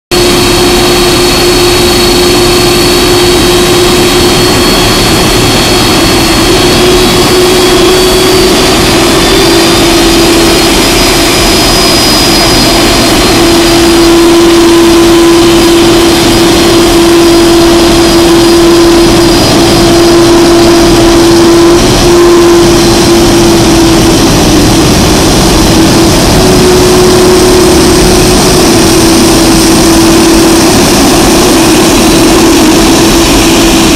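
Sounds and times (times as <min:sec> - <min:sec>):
jet engines whining at taxi: 0:00.1 - 0:33.9.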